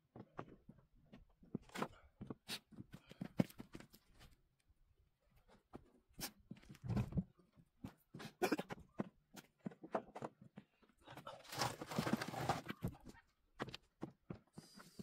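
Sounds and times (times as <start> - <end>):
footsteps on wooden pallets: 0.0 - 4.3, 6.5 - 15.0
wood scraping on wood: 11.3 - 12.9.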